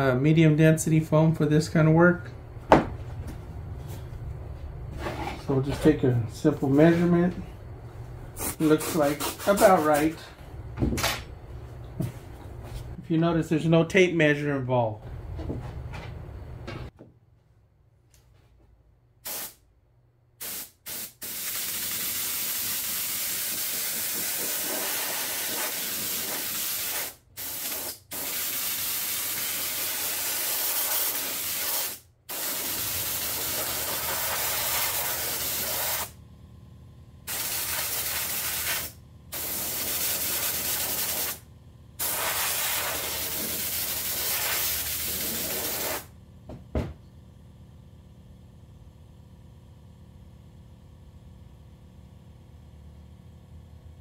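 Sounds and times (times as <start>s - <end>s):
spray gun hissing: 19.3s - 19.6s, 20.4s - 36.1s, 37.3s - 41.4s, 42.0s - 46.1s.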